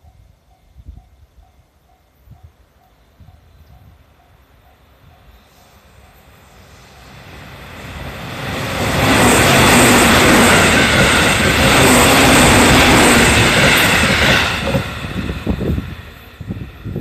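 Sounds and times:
train wheels on rails: 0.0 - 17.0.

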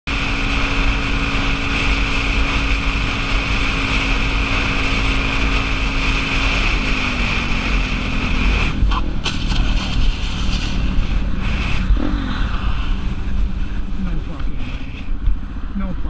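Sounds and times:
motorcycle engine running: 0.0 - 16.0
wind buffeting microphone: 7.9 - 15.9.

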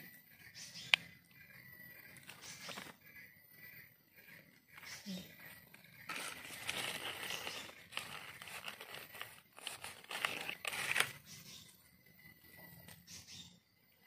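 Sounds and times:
dry leaves crackling: 2.2 - 3.0, 6.1 - 11.3
soil scraping: 5.5 - 11.4.

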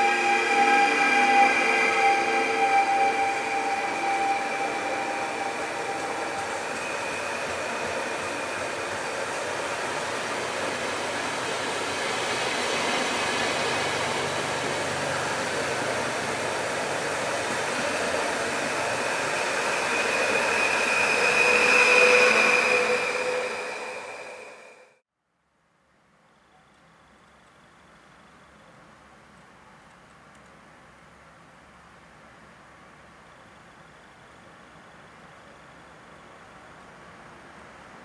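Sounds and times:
train wheels rushing on rail: 0.0 - 25.0
train whining tones: 0.0 - 25.0.

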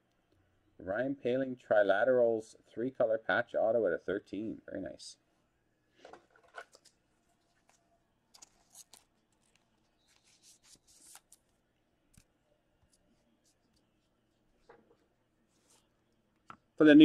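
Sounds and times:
trading cards rustling: 6.1 - 11.5.

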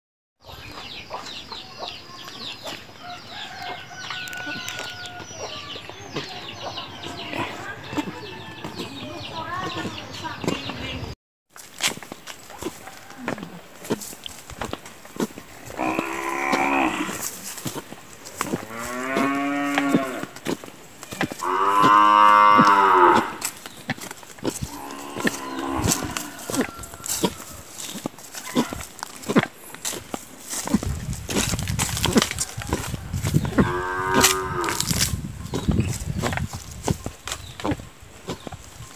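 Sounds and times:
chickens clucking and chirping: 0.4 - 11.2
footsteps on leafy path: 0.4 - 38.9
cow mooing: 15.7 - 17.2, 18.6 - 20.4, 21.4 - 23.5, 24.7 - 26.7, 33.6 - 34.9.

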